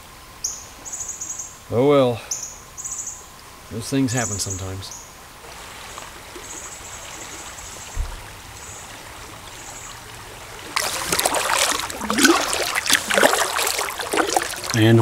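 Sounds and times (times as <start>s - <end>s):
faint bird chirps: 0.4s - 1.6s, 2.2s - 3.3s
river water rushing: 5.4s - 15.0s
water splashing around kayak paddling: 5.4s - 15.0s.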